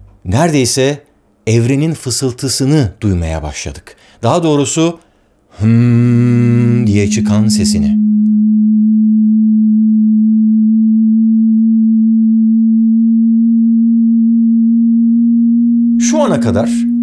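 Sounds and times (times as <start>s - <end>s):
low electronic hum: 5.6s - 17.0s.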